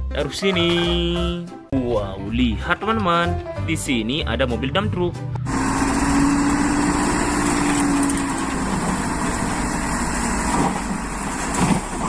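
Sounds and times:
diesel truck engine running: 0:05.4 - 0:12.0
hydraulic whine: 0:05.4 - 0:12.0.

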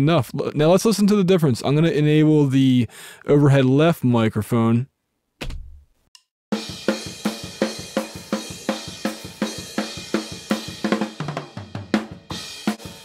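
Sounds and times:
drum kit beat: 0:06.5 - 0:13.0.

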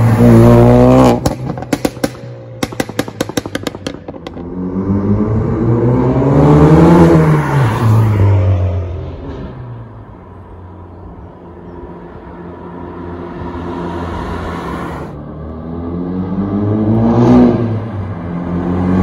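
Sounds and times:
exhaust pops and bangs: 0:01.1 - 0:04.6
car accelerating past: 0:04.4 - 0:10.0, 0:12.6 - 0:19.0.

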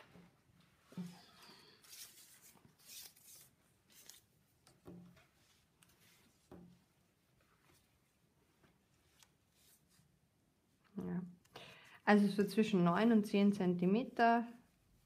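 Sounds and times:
fabric rustling: 0:00.0 - 0:10.4
tape measure handled on a table: 0:01.8 - 0:06.7.

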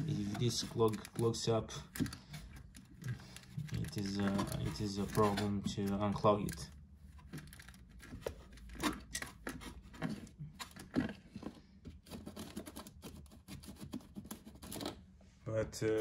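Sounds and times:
tool scraping and clicking on plastic: 0:00.0 - 0:15.1.

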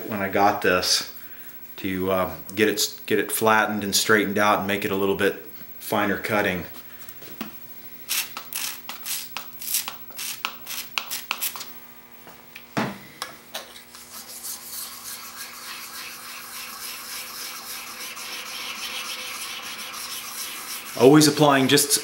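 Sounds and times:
blade scraping on sharpening stone: 0:14.0 - 0:21.0.

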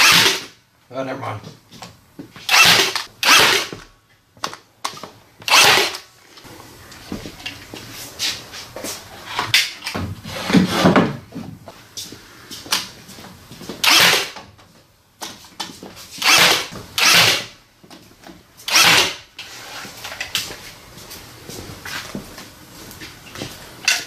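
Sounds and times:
pneumatic nail gun firing: 0:00.0 - 0:00.6, 0:02.5 - 0:03.7, 0:05.5 - 0:06.0, 0:13.8 - 0:14.4, 0:16.2 - 0:17.6, 0:18.7 - 0:19.3.

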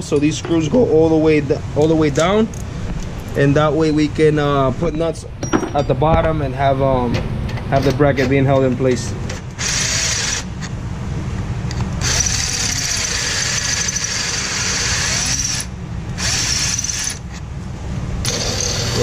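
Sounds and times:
power drill drilling metal: 0:09.6 - 0:10.6, 0:12.0 - 0:17.3, 0:18.2 - 0:19.0.

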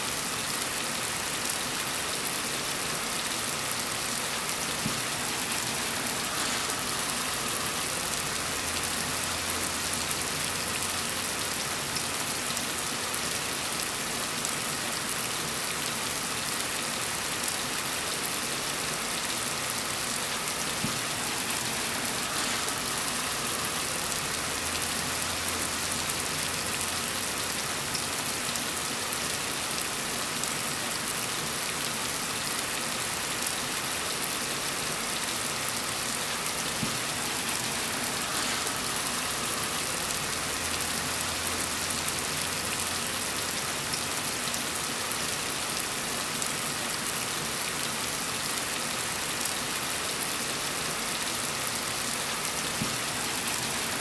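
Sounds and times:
heavy rain falling: 0:00.0 - 0:54.0.

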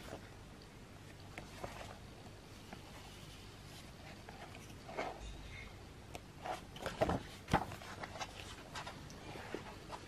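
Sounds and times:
pages turning: 0:06.4 - 0:10.0.

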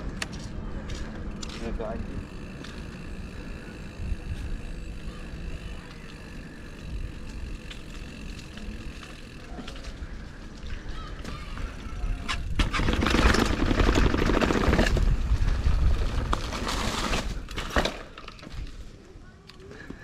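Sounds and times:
wind rumbling on microphone: 0:00.0 - 0:08.8, 0:11.5 - 0:17.6
bike tyre and road noise: 0:00.0 - 0:20.0.

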